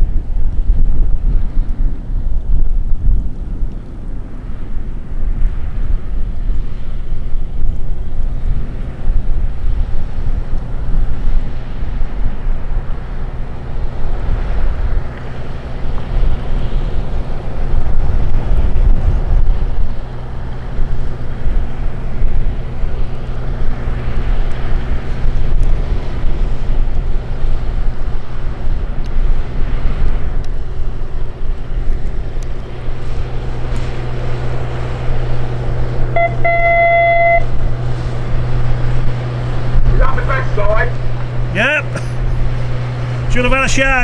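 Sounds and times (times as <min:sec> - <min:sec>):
boat diesel engine humming: 0:00.0 - 0:44.0
wind rumbling on microphone: 0:00.0 - 0:44.0
steady high tone: 0:36.1 - 0:37.6, 0:40.0 - 0:42.2.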